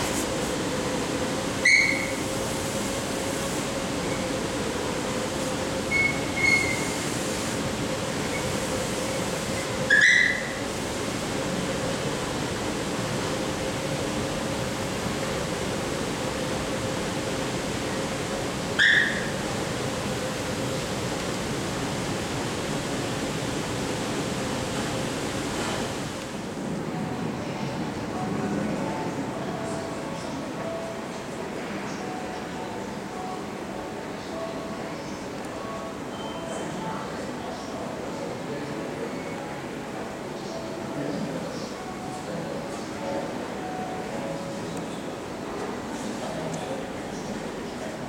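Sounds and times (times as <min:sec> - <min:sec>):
high-pitched whistle-like chirps: 0:01.6 - 0:02.2, 0:05.9 - 0:06.9.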